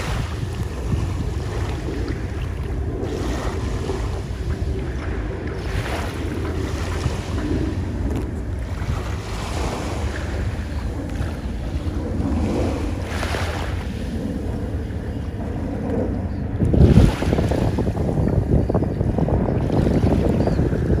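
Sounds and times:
small waves lapping on shore: 0.0 - 15.2, 16.6 - 18.2
wind rumbling on microphone: 0.0 - 21.0.

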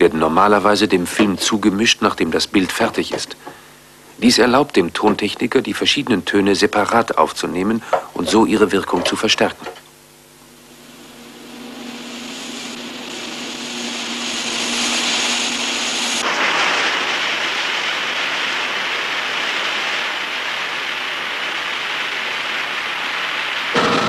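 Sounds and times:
high whine: 0.0 - 24.0
steady jet-like roar: 10.4 - 24.0.

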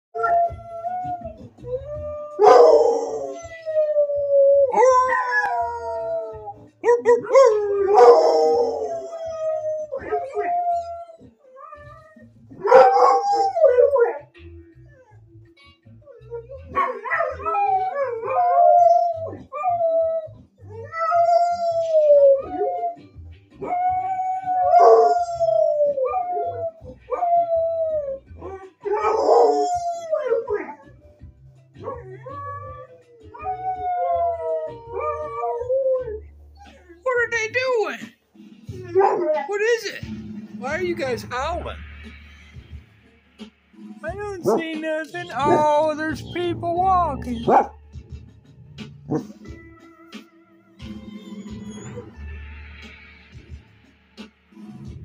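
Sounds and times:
dogs howling: 0.2 - 15.2, 16.0 - 37.0, 38.7 - 39.8, 44.4 - 46.6, 47.4 - 48.1, 49.1 - 52.9.

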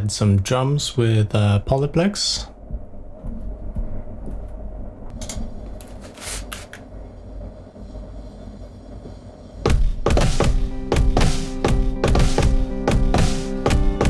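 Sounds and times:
low background hum: 0.0 - 10.6
electronic music with drums and synth: 9.7 - 14.0.

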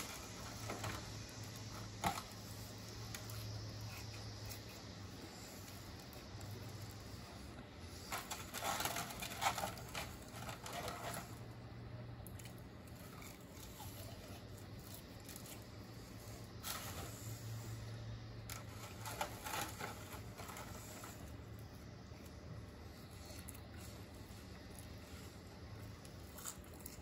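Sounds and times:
faint low hum: 0.0 - 27.0
chewing and nibbling: 22.9 - 27.0.

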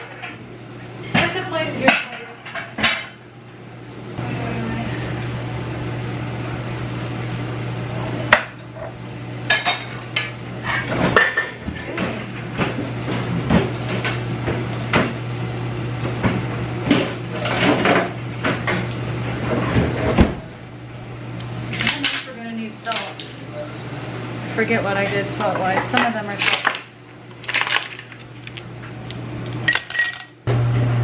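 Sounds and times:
steady low hum: 0.0 - 31.0
utensils clinking on pans and plates: 9.5 - 12.8, 21.7 - 23.5, 24.9 - 28.2, 29.7 - 30.4.

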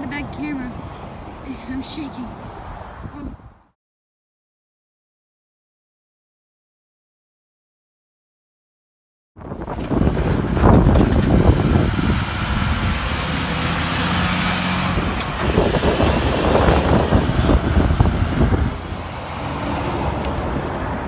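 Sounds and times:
diesel truck engine rumbling: 9.4 - 21.0
trailer and load rattling: 9.4 - 21.0.

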